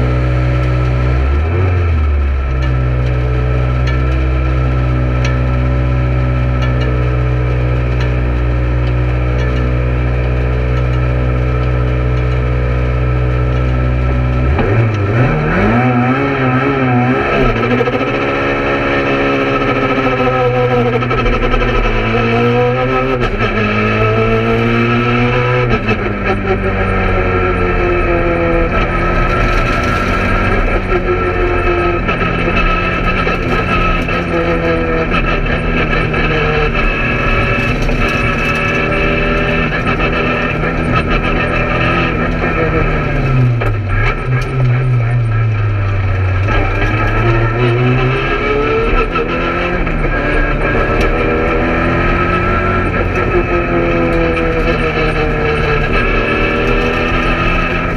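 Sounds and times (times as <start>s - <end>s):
rally car engine revving: 0.0s - 57.9s.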